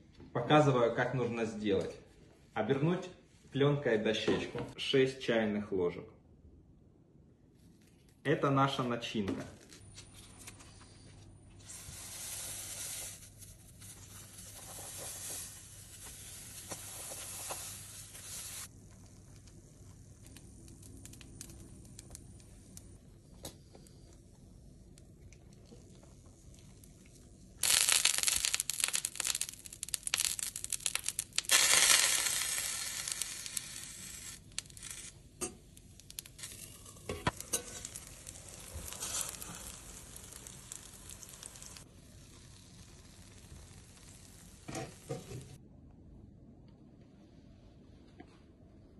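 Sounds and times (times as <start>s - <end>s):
oil sizzling in a frying pan: 11.6s - 22.8s, 27.6s - 45.6s.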